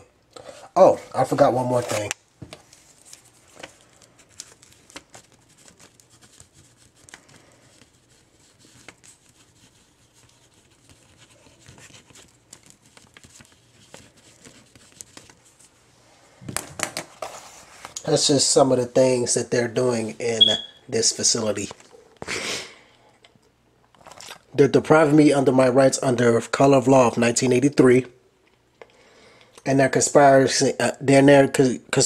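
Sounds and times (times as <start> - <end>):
paper rustling: 0.9 - 15.8, 17.0 - 18.0.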